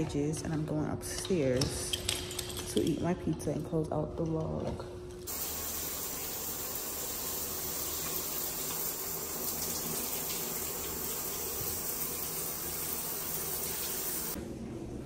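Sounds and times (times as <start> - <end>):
shower spraying onto tiles: 5.3 - 14.4.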